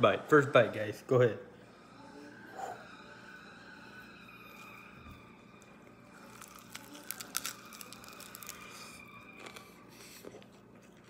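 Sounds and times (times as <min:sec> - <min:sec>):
person chewing crispy food: 0:06.0 - 0:11.0.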